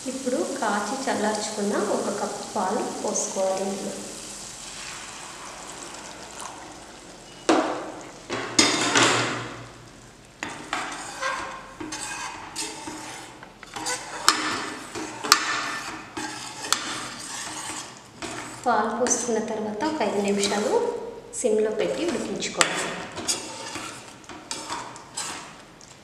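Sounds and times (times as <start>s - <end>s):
milk pouring into hot pan: 2.2s - 18.7s
spatula scraping and knocking pan: 7.3s - 9.6s, 10.4s - 20.9s, 21.8s - 25.7s.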